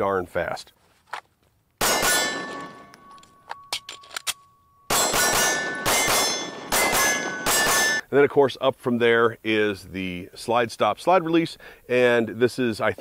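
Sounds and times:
pistol shots: 1.8 - 3.1, 4.9 - 8.0
metallic ringing of steel targets: 1.8 - 8.1.

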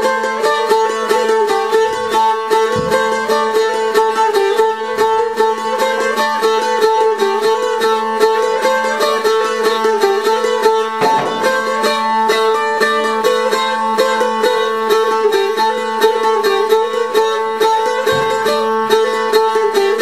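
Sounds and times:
plucked tambura with drone: 0.0 - 20.0.

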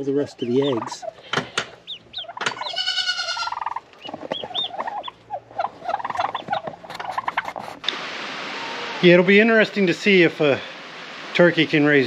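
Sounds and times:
ducklings peeping: 0.0 - 7.8
turkey hen calling: 0.0 - 9.7.

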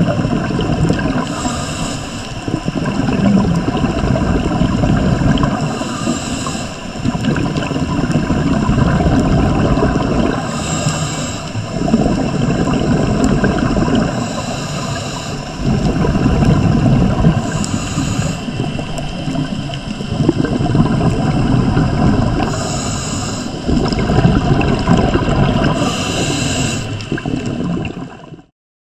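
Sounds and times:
exhaled bubbles gurgling underwater: 0.0 - 28.5
regulator inhalation hiss: 1.2 - 2.4, 5.6 - 7.0, 10.4 - 11.8, 14.0 - 15.6, 17.4 - 18.9, 22.4 - 23.7, 25.7 - 27.2.

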